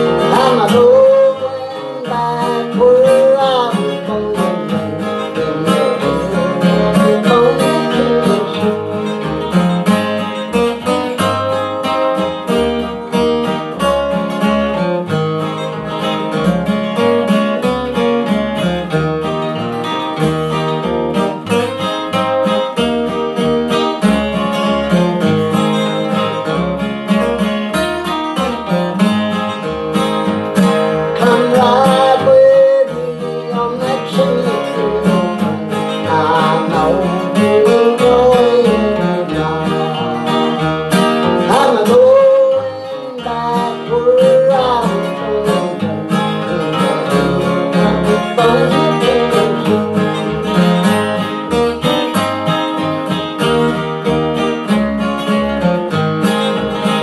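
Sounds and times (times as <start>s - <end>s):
man singing: 0.0s - 9.6s, 31.0s - 51.2s
acoustic guitar picking: 0.0s - 57.0s.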